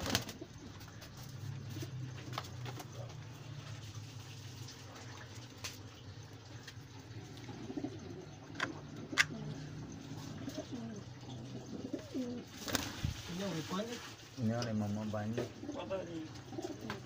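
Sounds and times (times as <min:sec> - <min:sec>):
steady low hum: 0:00.0 - 0:13.1
pigeons cooing: 0:00.0 - 0:13.8, 0:15.1 - 0:17.0.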